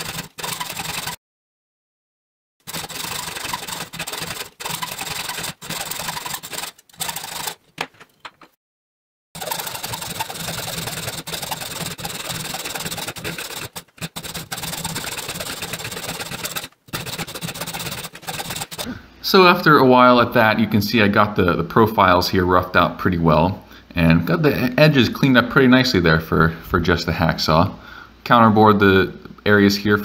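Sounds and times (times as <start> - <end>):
hacksaw cutting metal: 0.0 - 1.2, 2.7 - 7.6, 9.4 - 18.9.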